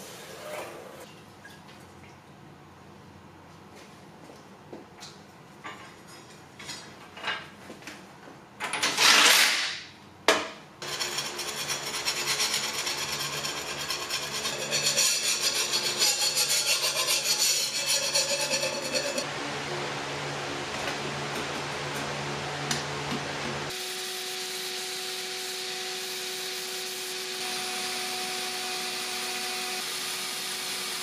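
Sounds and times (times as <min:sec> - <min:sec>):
file scraping steel blade: 0:10.8 - 0:19.3.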